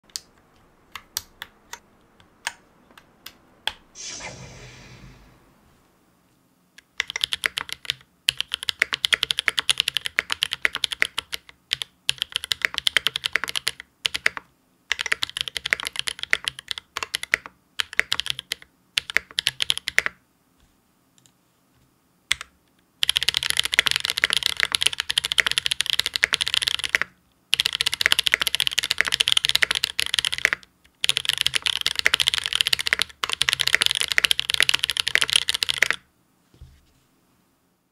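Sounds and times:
mechanical keyboard typing: 6.9s - 20.2s, 22.3s - 36.0s.

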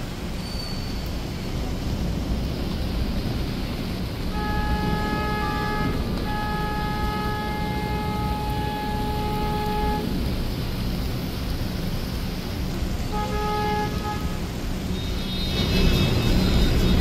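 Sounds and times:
rain: 0.0s - 17.0s
traffic on wet street: 0.0s - 17.0s
car horn honking: 4.3s - 10.3s, 13.1s - 15.6s.

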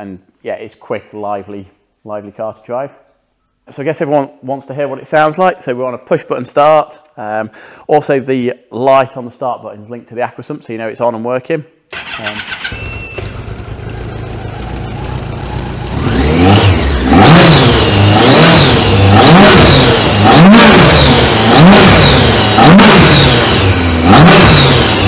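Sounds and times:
motorbike engine starting and idling: 11.9s - 25.0s
engine revving with induction roar: 13.2s - 25.0s.

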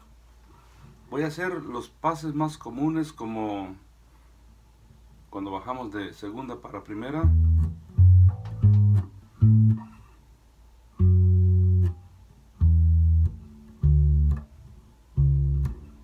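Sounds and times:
bass guitar plucked notes: 7.1s - 10.2s, 10.9s - 16.0s.

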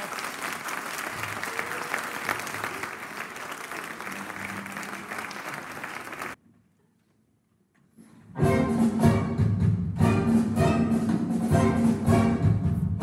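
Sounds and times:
audience applauding: 0.0s - 6.4s.

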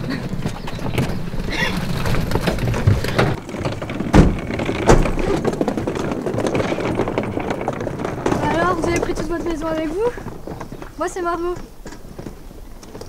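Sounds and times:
footsteps crunching: 0.0s - 13.0s
suitcases rolling over gravel: 0.0s - 13.0s
sharp knocks: 0.8s - 11.0s.

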